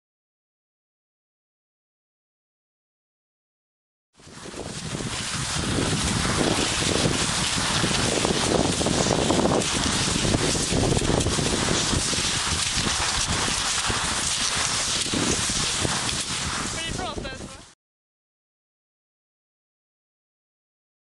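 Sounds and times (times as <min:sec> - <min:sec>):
microphone handling noise: 0:04.2 - 0:17.7
skis sliding over snow: 0:04.2 - 0:17.8
wind on microphone: 0:04.2 - 0:17.8.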